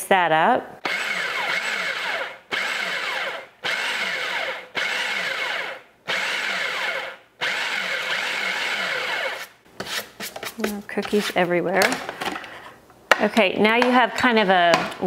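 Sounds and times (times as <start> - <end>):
food processor pulsing: 0.9 - 9.5.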